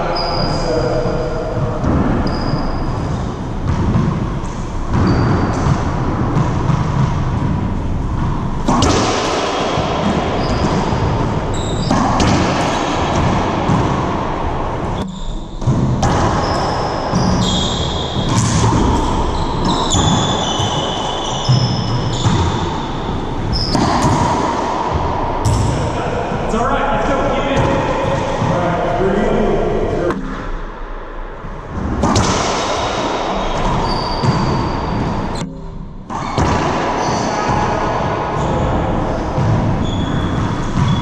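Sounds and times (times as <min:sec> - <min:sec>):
sneakers squeaking on hardwood: 0:01.8 - 0:25.9, 0:33.3 - 0:35.5, 0:38.4 - 0:41.0.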